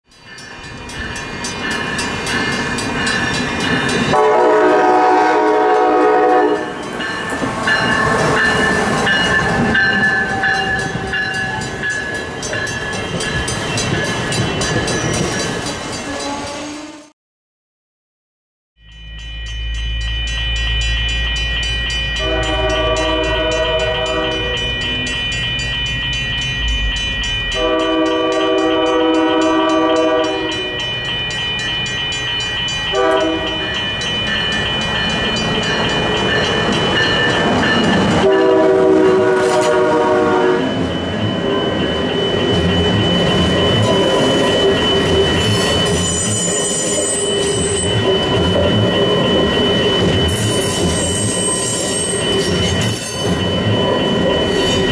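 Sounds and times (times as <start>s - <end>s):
train rumble and rail noise: 0.1s - 17.1s, 19.2s - 54.9s
train air horn: 4.1s - 6.8s, 16.1s - 17.1s, 22.2s - 24.7s, 27.6s - 30.7s, 32.9s - 33.6s, 38.2s - 40.7s
wheel squeal: 42.1s - 54.9s.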